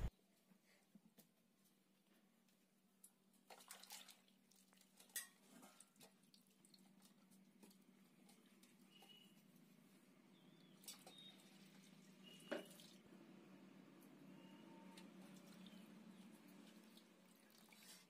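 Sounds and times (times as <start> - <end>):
water splashing and dripping: 3.4 - 7.8, 10.6 - 13.0, 15.0 - 18.0.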